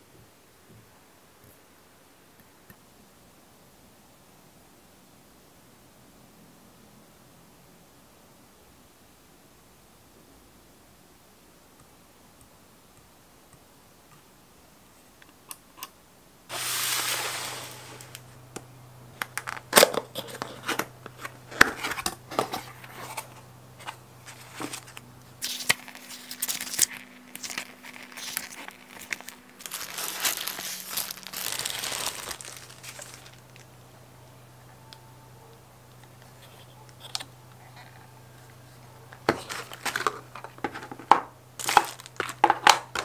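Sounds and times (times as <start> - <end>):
cardboard sliding scrape: 16.5 - 18.2
cardboard clicks and crinkles: 19.2 - 33.7, 36.2 - 43.0.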